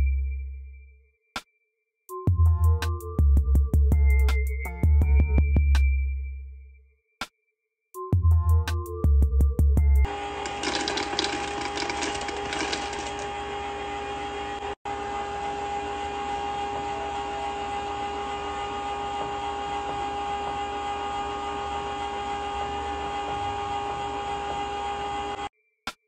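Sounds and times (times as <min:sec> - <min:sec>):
machine hum with whine: 0:10.1 - 0:25.5.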